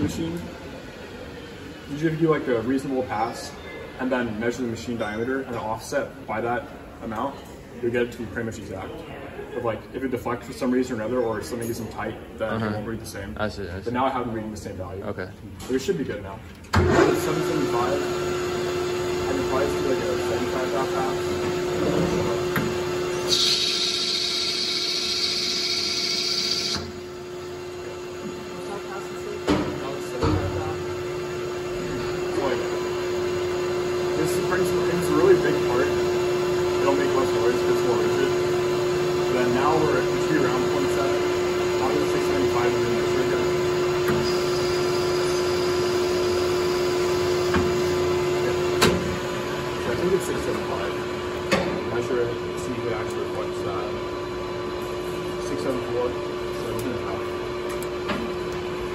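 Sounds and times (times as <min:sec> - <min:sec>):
metal lathe humming: 0:20.1 - 0:28.8, 0:38.0 - 0:49.8.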